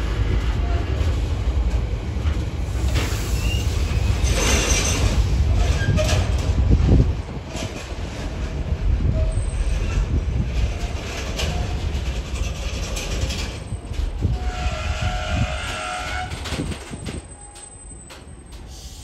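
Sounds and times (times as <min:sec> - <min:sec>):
train rumbling past: 0:00.0 - 0:19.0
train wheel squeal: 0:02.7 - 0:06.4, 0:09.0 - 0:19.0.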